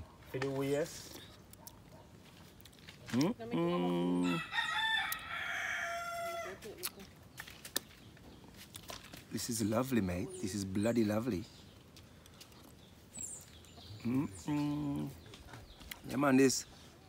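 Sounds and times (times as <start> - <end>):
rooster crowing: 4.2 - 6.6
man humming: 14.0 - 15.2.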